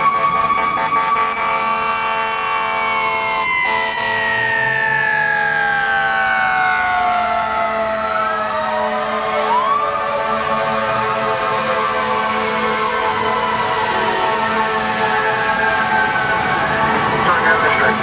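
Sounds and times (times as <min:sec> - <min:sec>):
fire truck siren wailing: 0:00.0 - 0:18.0.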